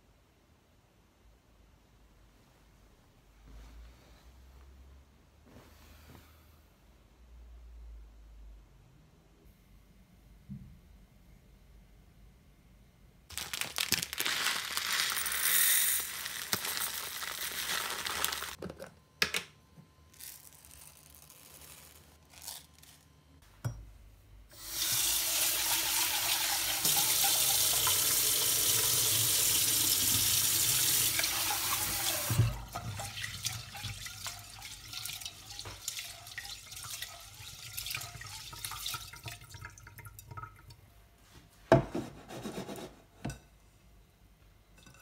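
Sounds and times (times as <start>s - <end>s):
tap water running into pot: 24.6s - 40.8s.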